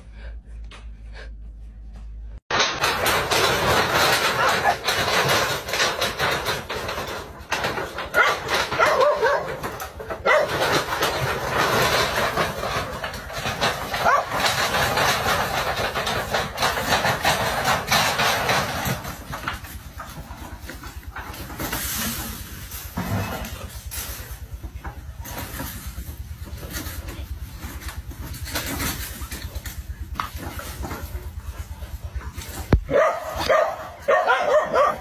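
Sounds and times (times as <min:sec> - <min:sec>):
paws scuffling on metal sheets: 0:02.0 - 0:35.0
dogs yelping and barking: 0:03.6 - 0:19.2, 0:31.7 - 0:35.0.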